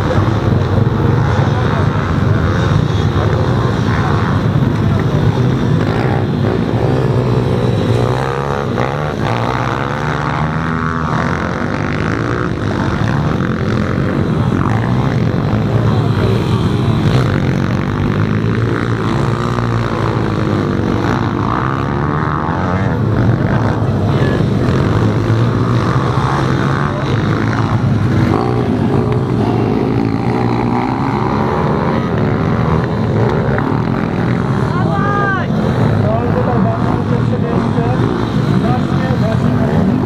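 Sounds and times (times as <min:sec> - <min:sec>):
pit bike engines revving: 0:00.0 - 0:40.0.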